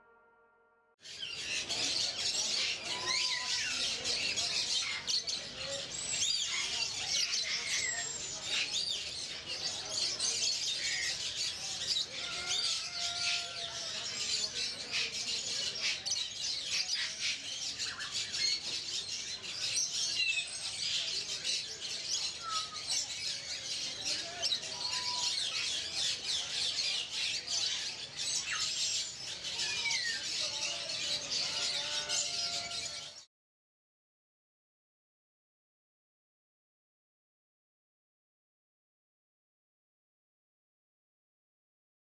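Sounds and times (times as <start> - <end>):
caged birds chirping: 1.0 - 33.3.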